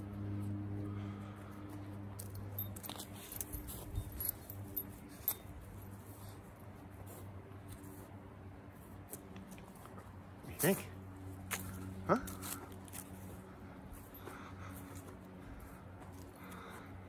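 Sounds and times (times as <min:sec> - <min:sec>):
steady low hum: 0:00.0 - 0:17.0
harness metal jingling: 0:02.1 - 0:06.4.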